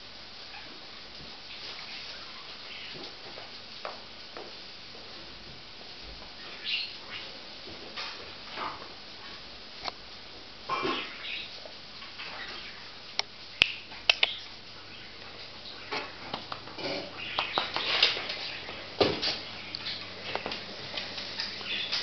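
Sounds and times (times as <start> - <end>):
dog making clicks: 13.2 - 14.5.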